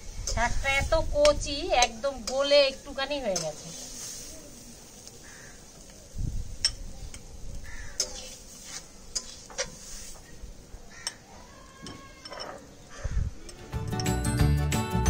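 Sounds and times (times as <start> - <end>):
metal spoon clinking against pot: 3.3 - 3.6, 6.6 - 7.3, 11.0 - 12.8.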